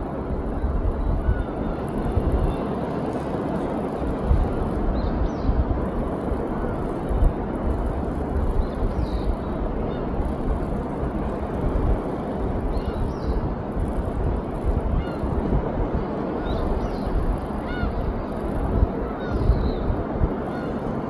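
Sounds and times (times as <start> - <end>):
wind buffeting microphone: 0.0 - 21.0
faint high bird calls: 0.5 - 2.8, 12.6 - 13.4, 16.4 - 20.9.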